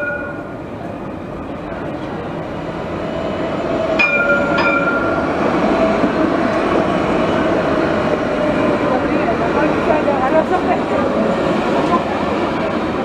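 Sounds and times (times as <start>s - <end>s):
tram warning bell dings: 0.0s - 2.5s, 3.2s - 9.1s
tram rolling on track: 0.0s - 13.0s.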